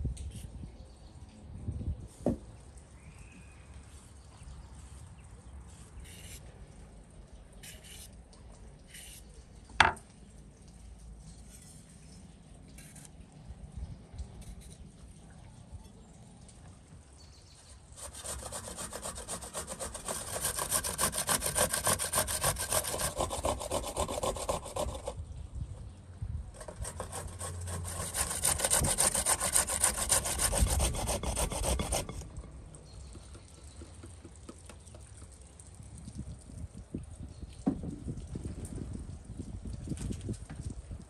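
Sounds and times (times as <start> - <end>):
carrot grated on metal grater: 18.0 - 25.1, 26.6 - 32.2.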